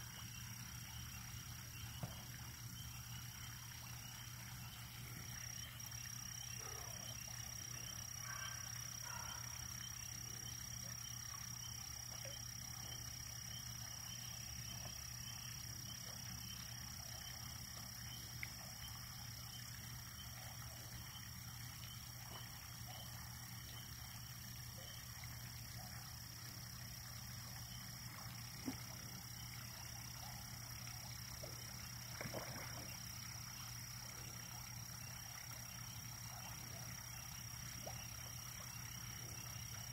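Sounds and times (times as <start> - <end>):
chorus of frogs: 0.0 - 39.9.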